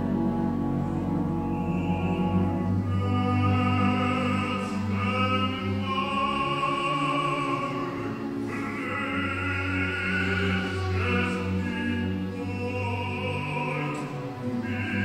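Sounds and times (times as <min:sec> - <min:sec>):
orchestra playing opera music: 0:00.0 - 0:15.0
operatic voice singing: 0:00.8 - 0:15.0.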